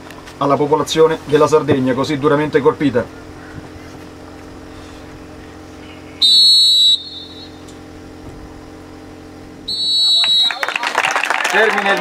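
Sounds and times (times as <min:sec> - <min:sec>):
steady low hum: 0:00.0 - 0:11.2
referee's whistle blast: 0:06.2 - 0:07.7, 0:09.7 - 0:10.8.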